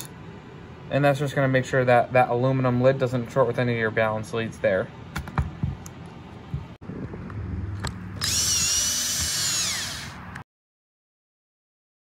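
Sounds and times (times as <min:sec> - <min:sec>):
cordless drill whining: 0:08.2 - 0:10.4.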